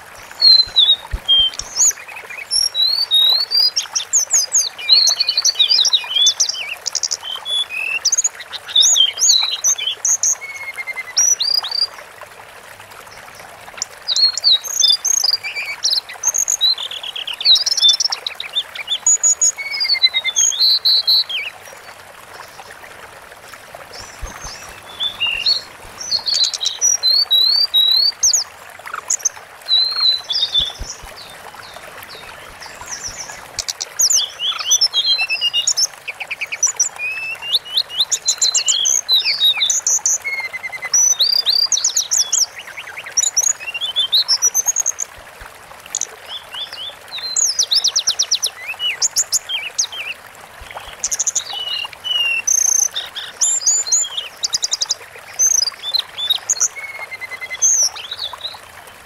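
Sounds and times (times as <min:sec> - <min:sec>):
faint steady hiss: 0:00.0 - 0:59.0
bird singing trills: 0:00.3 - 0:02.0, 0:24.0 - 0:35.8.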